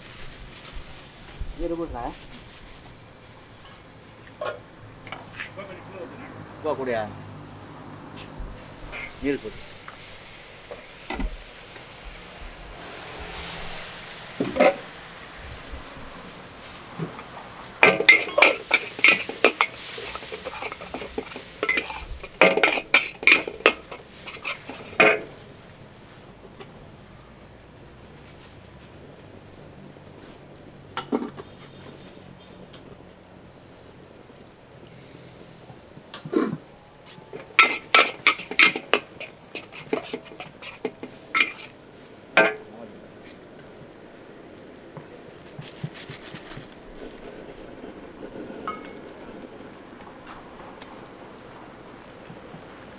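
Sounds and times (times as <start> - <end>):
metal utensil clanking on pan: 4.4 - 5.3, 14.4 - 14.8, 17.0 - 25.4, 37.3 - 41.8, 42.4 - 42.7.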